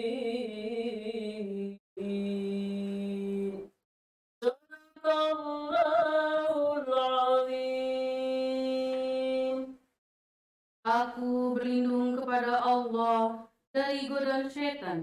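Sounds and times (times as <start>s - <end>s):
woman chanting recitation: 10.9s - 15.0s.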